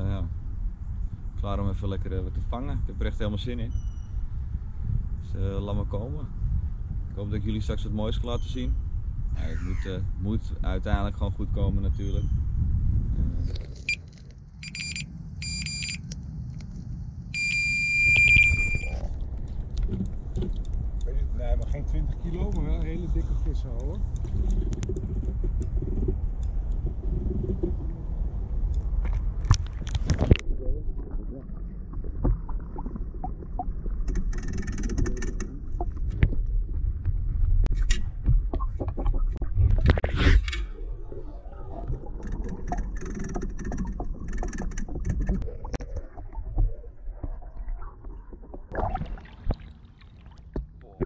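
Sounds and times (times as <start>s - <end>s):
low rumble of handling: 0.0s - 48.7s
bite alarm beeps: 14.6s - 16.0s, 17.4s - 19.0s
bite alarm long tone: 14.6s - 16.0s, 17.4s - 19.0s
water splash: 39.8s - 50.8s
knocks and clicks: 42.2s - 45.9s
bubbles hissing: 45.4s - 50.5s.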